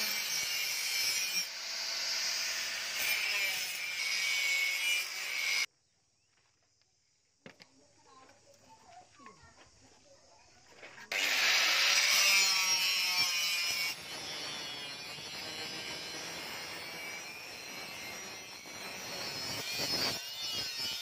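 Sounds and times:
angle grinder grinding steel: 0.0s - 5.7s, 11.1s - 21.0s.

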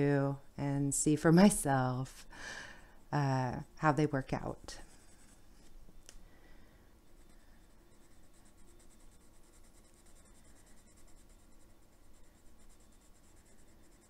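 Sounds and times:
pencil scratching on paper: 4.4s - 5.7s, 7.2s - 14.0s.

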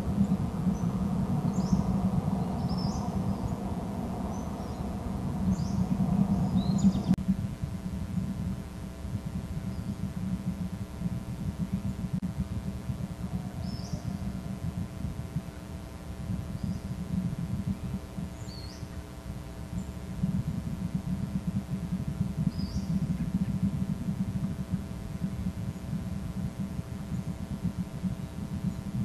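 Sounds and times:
constant hum: 0.0s - 29.0s
low rumble: 0.0s - 29.0s
high rising bird chirps: 0.2s - 7.2s, 22.4s - 23.6s.

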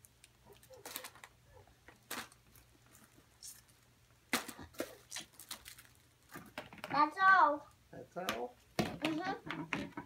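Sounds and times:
plastic toys clicking and knocking: 6.3s - 7.1s, 8.2s - 10.0s.

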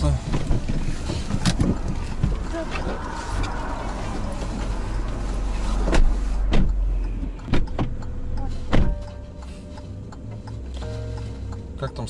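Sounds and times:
car engine idling: 0.0s - 12.0s
car door shutting: 0.2s - 3.6s, 5.8s - 6.8s, 7.4s - 9.3s
sharp knocks and thumps: 0.2s - 9.2s.

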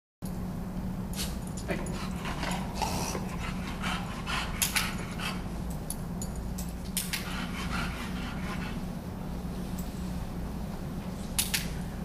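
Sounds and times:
steady low hum: 0.2s - 12.0s
dog panting: 1.7s - 5.6s, 7.0s - 9.0s.

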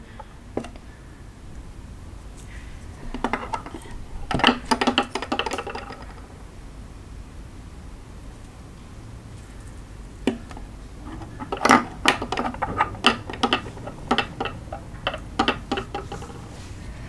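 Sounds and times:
pens clicking on wooden table: 3.1s - 6.4s, 10.3s - 16.5s.

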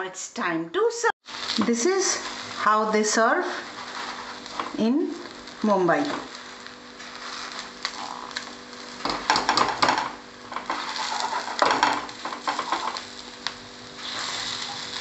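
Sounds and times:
pan sizzling: 1.2s - 15.0s
spatula scraping frying pan: 3.5s - 4.8s, 6.3s - 13.2s, 14.0s - 15.0s.

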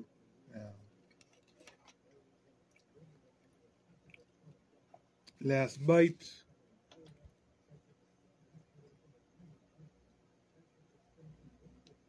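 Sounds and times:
faint chewing: 0.8s - 5.4s.

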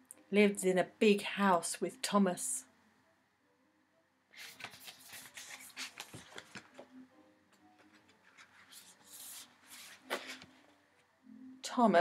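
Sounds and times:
paper pages rustling: 4.4s - 7.0s, 7.8s - 10.8s.

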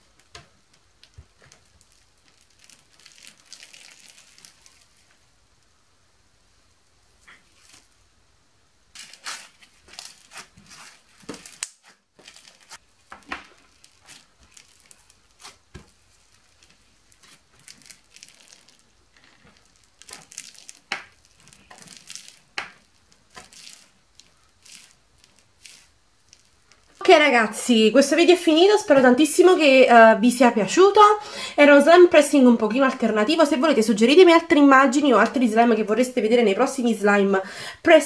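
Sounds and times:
slime crackling and squishing: 0.0s - 5.2s, 8.9s - 29.2s.

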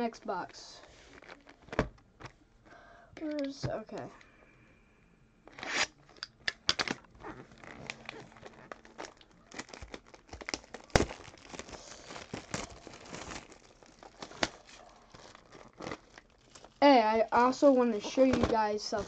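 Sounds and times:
wrapping and cardboard crinkling: 0.8s - 2.4s, 5.5s - 19.0s.

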